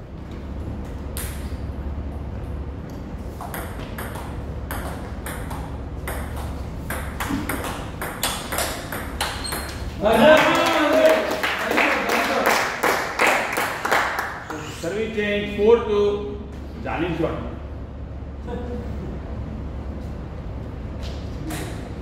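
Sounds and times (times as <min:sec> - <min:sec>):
steady low hum: 0:00.0 - 0:22.0
table tennis ball hits: 0:03.4 - 0:10.0.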